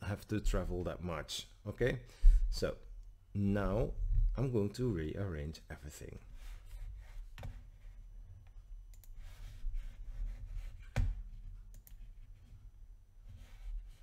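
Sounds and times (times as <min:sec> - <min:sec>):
computer mouse clicks: 0:08.9 - 0:09.2, 0:11.7 - 0:12.0.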